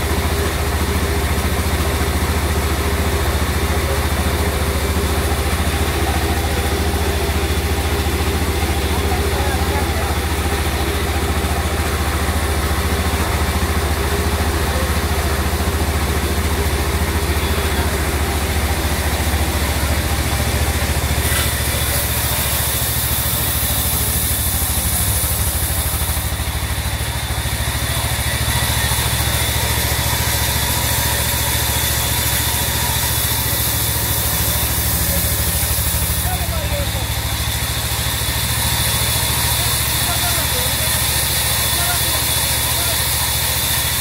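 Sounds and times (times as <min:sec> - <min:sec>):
band sawmill humming: 0:00.0 - 0:44.0
saw blade hissing through wood: 0:16.2 - 0:26.5, 0:27.5 - 0:44.0.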